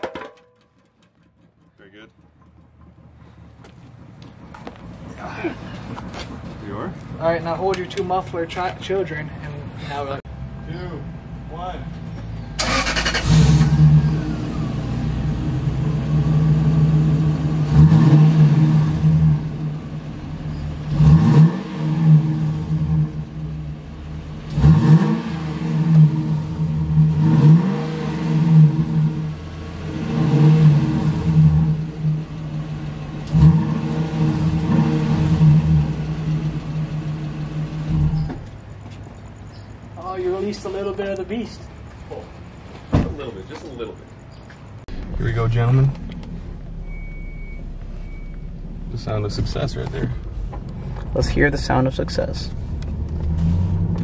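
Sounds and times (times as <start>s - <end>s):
car engine idling: 0.6s - 54.0s
engine revving in throttle blips: 12.6s - 38.8s, 44.9s - 54.0s.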